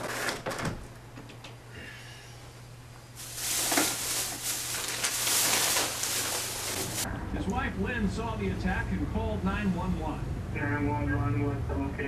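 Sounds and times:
low electrical hum: 0.0s - 12.0s
steady hiss: 3.2s - 7.0s.

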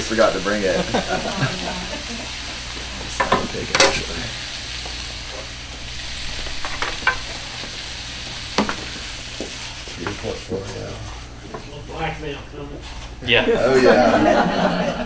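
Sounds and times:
vegetables sizzling in skillet: 0.0s - 12.1s
utensil clacking and scraping pan: 3.1s - 4.2s, 6.4s - 7.7s.

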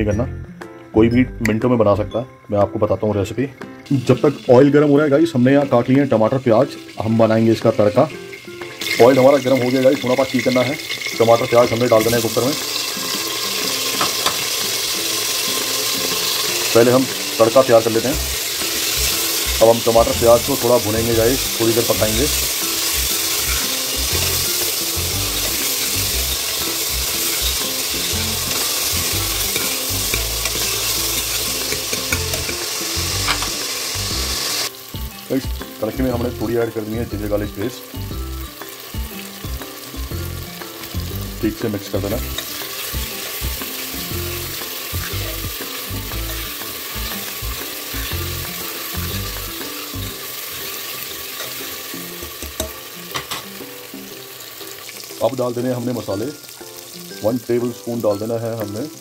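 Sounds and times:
vegetables sizzling in hot oil: 3.8s - 59.0s
spatula scraping a pot: 22.4s - 32.6s
spoon clicks: 27.2s - 32.7s.

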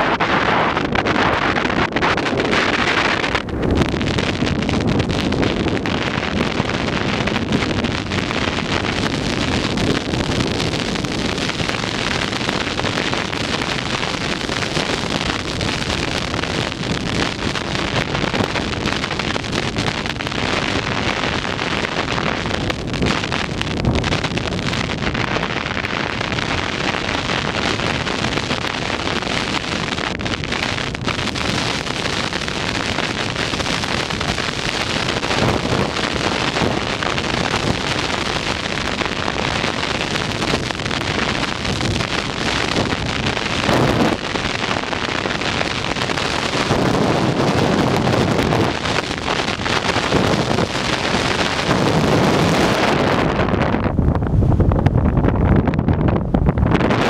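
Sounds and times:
wind rushing over microphone: 0.0s - 57.0s.

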